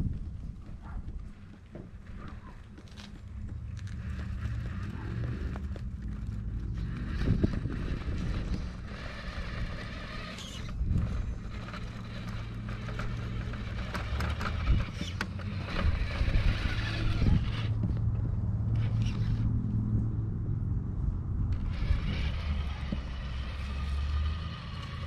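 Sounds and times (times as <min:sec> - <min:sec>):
electric motor whirring: 0:03.8 - 0:18.0, 0:18.7 - 0:19.5, 0:21.5 - 0:25.0.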